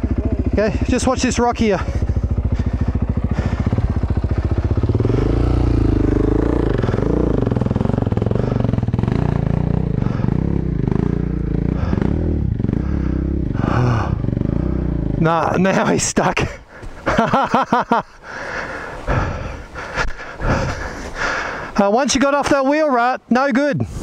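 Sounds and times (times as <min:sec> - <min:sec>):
motorcycle revving under load: 0:00.0 - 0:15.9
motorcycle engine idling: 0:00.0 - 0:21.7.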